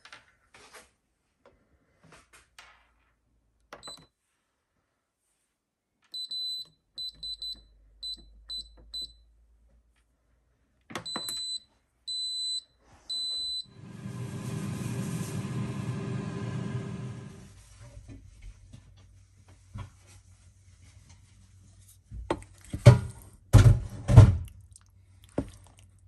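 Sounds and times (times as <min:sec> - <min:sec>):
longer beeps: 0:11.1 - 0:13.8
pressure cooker hiss with hum: 0:13.7 - 0:17.5.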